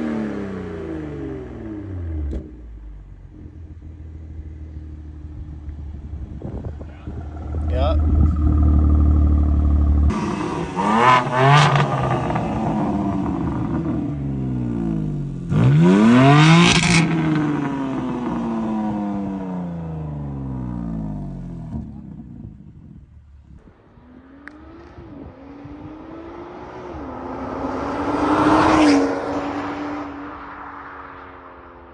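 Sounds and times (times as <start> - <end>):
car accelerating: 0.0 - 22.6, 23.6 - 31.9
car engine revving: 0.0 - 22.6, 23.6 - 31.4.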